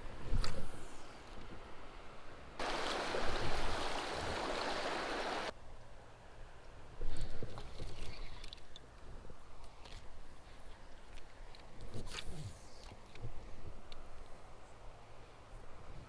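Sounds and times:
quiet water movement: 0.0 - 16.0
creek water rushing: 2.0 - 5.5.

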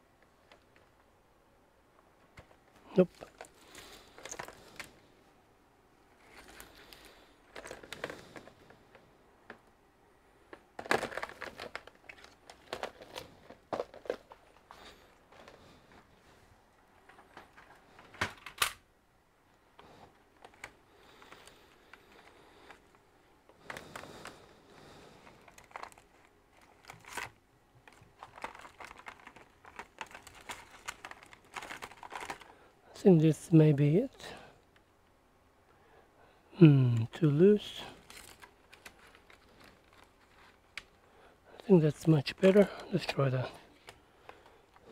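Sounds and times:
cables rustling: 1.9 - 5.4, 6.0 - 9.7, 10.4 - 18.7, 19.5 - 35.2, 36.9 - 44.9.

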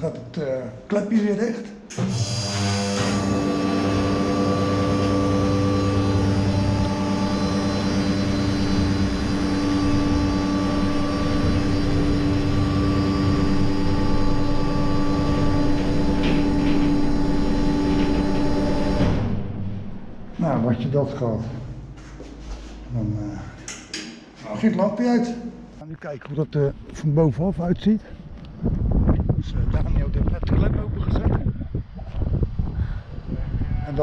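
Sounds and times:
electric drive humming: 1.9 - 22.0.

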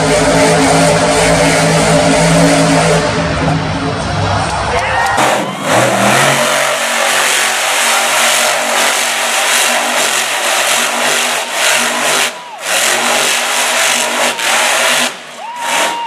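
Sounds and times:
monster truck engine revving: 0.0 - 16.0.

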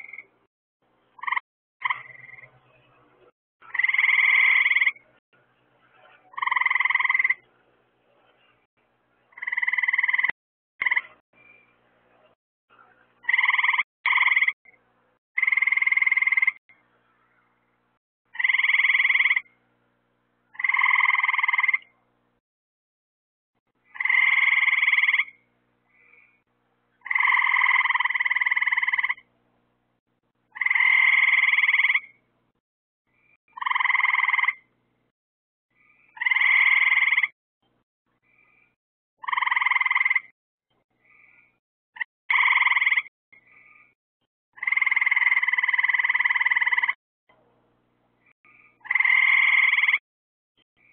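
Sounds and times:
frog calling: 0.0 - 0.3, 1.2 - 2.5, 3.6 - 5.0, 6.3 - 7.4, 9.3 - 11.2, 13.2 - 14.6, 15.4 - 16.6, 18.3 - 19.5, 20.5 - 21.9, 23.8 - 25.4, 27.0 - 29.3, 30.5 - 32.2, 33.5 - 34.7, 36.1 - 37.4, 39.2 - 40.3, 42.0 - 43.9, 44.6 - 47.0, 48.5 - 50.0.

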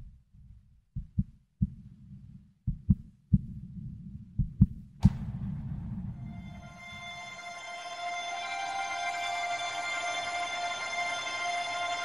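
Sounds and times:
heartbeat thumps: 0.0 - 6.6
sharp hit: 5.0 - 10.0
low rumbling drone: 5.0 - 12.0
music with held tones: 6.3 - 12.0.

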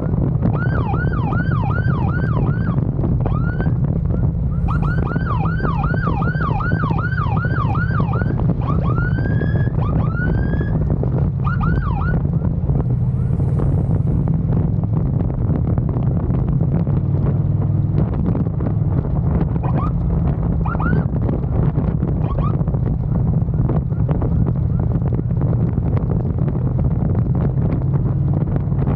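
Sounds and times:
wind on microphone: 0.0 - 28.9
electronic siren sweeps and whoops: 0.4 - 10.8, 11.4 - 12.3, 19.6 - 20.0, 20.6 - 21.1, 22.2 - 22.6.

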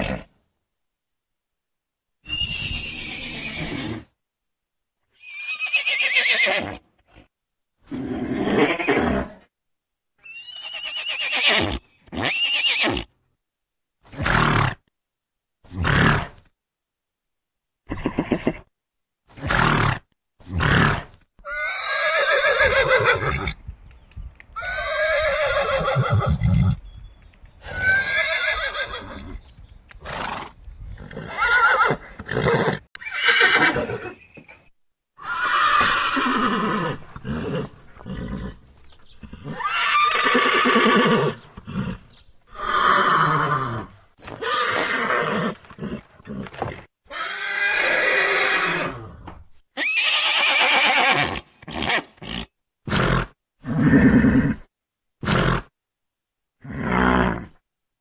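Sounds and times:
horses neighing: 2.3 - 4.1, 5.2 - 6.8, 7.9 - 9.4, 20.6 - 23.6, 24.6 - 26.8, 27.6 - 29.4, 30.0 - 34.6, 35.2 - 49.2, 49.8 - 54.6.

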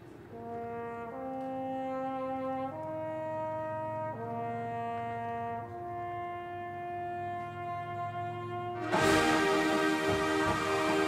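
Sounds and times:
brass band held chords: 0.2 - 11.0.

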